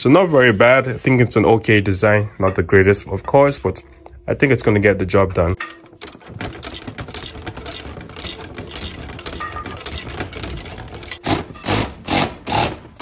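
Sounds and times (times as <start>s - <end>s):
power tool whirring: 11.2s - 13.0s.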